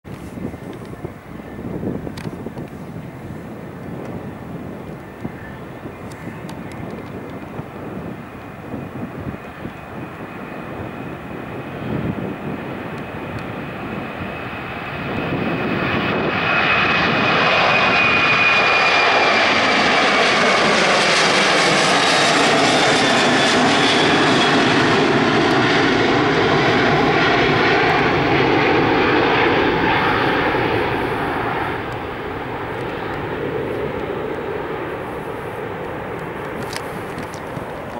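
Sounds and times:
jet engines at takeoff thrust: 0.1s - 37.9s
high whine sliding lower: 14.5s - 37.9s.

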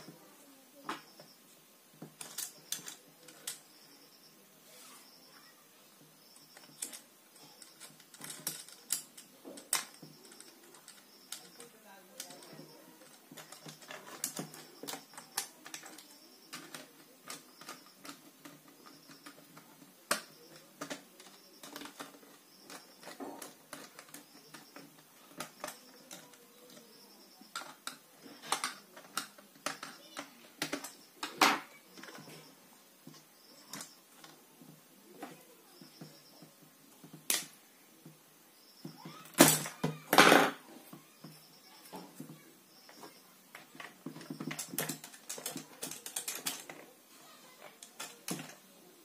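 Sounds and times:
wire being handled: 2.0s - 3.9s, 6.2s - 37.6s, 38.8s - 48.7s
screwdriver clicking on screws: 6.4s - 31.4s.

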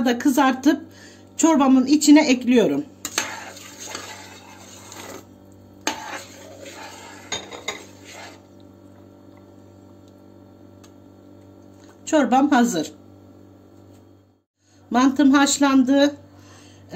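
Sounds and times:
glass bowl clink: 7.3s - 7.8s.

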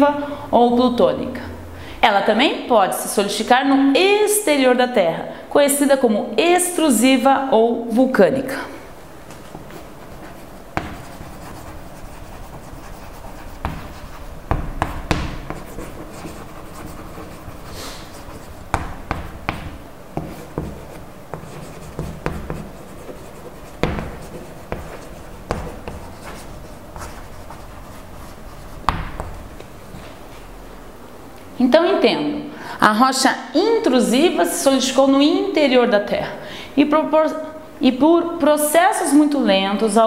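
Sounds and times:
chalk writing on chalkboard: 9.4s - 29.6s.

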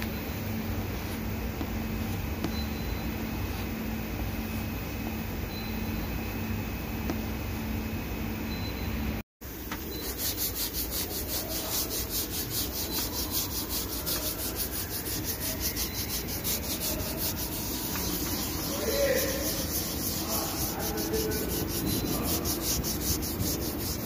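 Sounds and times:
sandpaper rubbing on bumper: 9.9s - 24.0s.

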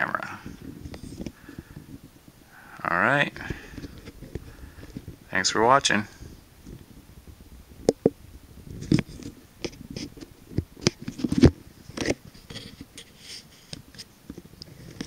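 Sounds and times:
camera gear handling noise: 0.5s - 1.8s, 3.4s - 5.1s.

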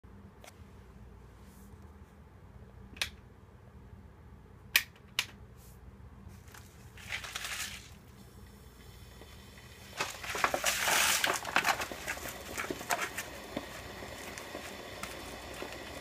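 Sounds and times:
plastic film crinkling as torn: 6.5s - 8.0s, 10.0s - 15.2s.

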